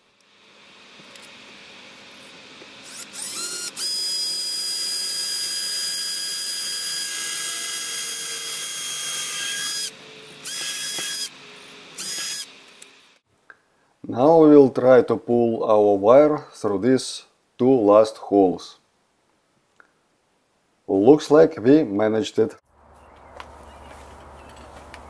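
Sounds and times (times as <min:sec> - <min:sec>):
cordless drill whining: 0:02.1 - 0:13.2.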